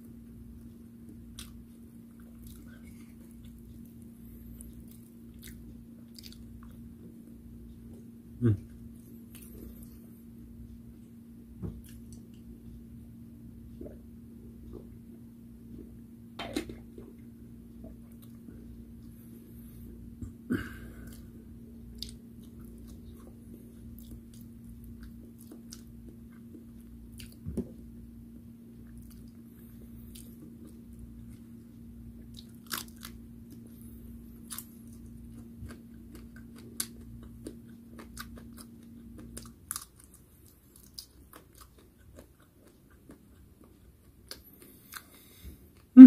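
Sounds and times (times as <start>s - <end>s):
person chewing crunchy food: 1.1s - 7.0s, 20.6s - 27.8s, 28.8s - 45.9s.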